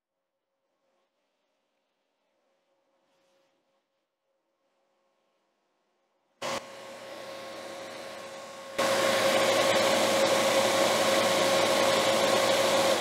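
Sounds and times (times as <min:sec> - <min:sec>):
compressor and fan whirring: 0:06.4 - 0:13.0.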